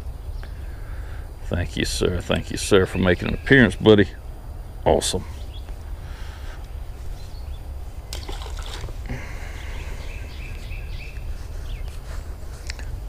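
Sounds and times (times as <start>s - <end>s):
steady low rumble: 0.0s - 13.0s
water trickling and dripping: 8.1s - 9.0s
fish splashing into water: 8.1s - 9.1s.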